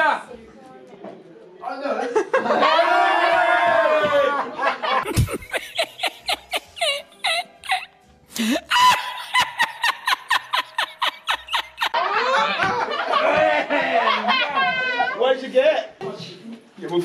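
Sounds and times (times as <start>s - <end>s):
man laughing hard: 5.0s - 12.5s.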